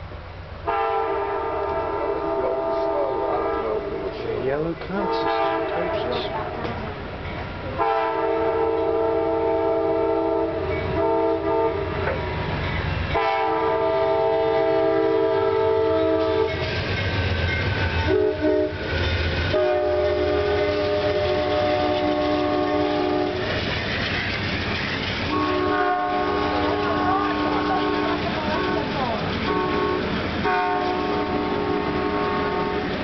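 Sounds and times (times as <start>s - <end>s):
diesel train rumbling past: 0.0s - 33.0s
locomotive air horn blasts: 0.6s - 4.1s, 5.0s - 6.6s, 7.8s - 12.2s, 13.1s - 16.6s, 18.1s - 18.9s, 19.5s - 23.5s, 25.3s - 28.7s, 29.4s - 33.0s.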